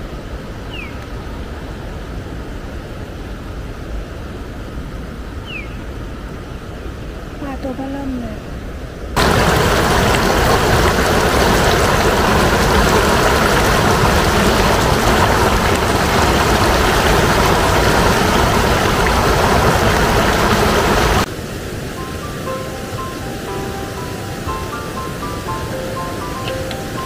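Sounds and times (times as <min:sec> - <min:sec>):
river water rushing over weir: 0:09.2 - 0:27.0.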